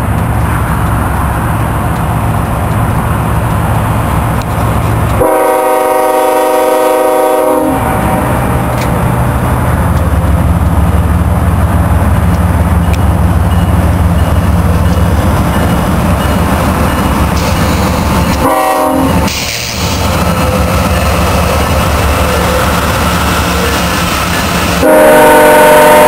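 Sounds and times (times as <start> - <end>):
train rumble: 0.0 - 26.0
locomotive air horn: 5.2 - 7.9, 18.4 - 19.9, 24.8 - 26.0.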